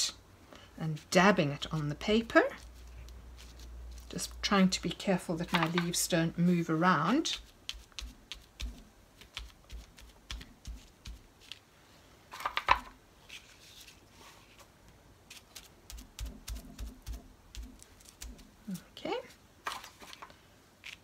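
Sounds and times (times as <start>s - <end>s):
sponge dabbing paint on paper: 1.0s - 11.6s, 15.3s - 19.3s.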